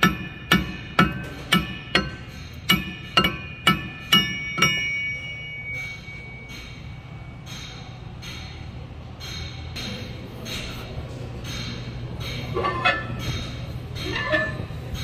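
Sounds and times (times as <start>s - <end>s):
hammer ringing on metal: 0.0s - 10.8s.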